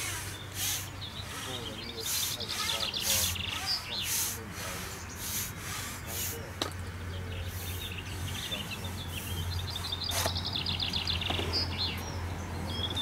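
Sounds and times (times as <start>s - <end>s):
fast bird trill: 0.0s - 6.5s
small birds singing: 0.0s - 13.0s.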